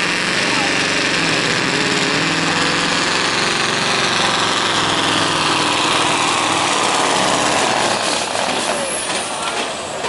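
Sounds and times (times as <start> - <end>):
diesel truck engine under load: 0.0 - 10.0.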